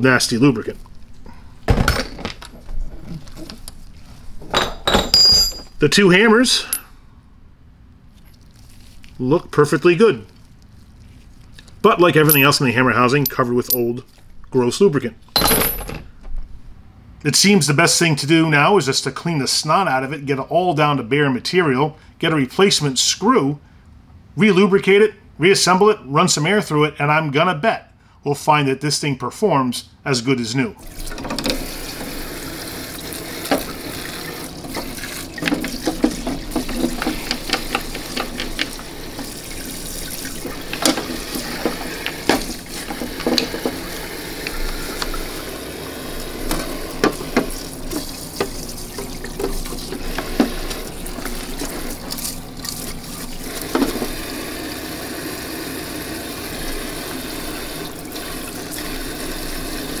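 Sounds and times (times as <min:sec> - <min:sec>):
parts knocking against metal tank: 0:04.4 - 0:05.8, 0:35.4 - 0:38.8
pump running: 0:30.8 - 1:00.0
brushing parts: 0:34.6 - 0:45.2.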